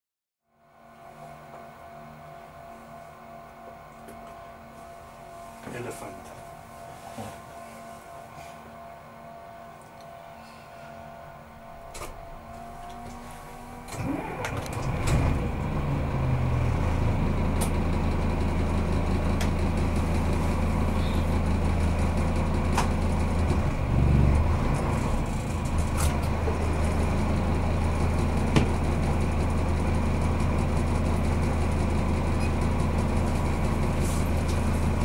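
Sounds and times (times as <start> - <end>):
diesel engine humming: 10.2 - 35.0.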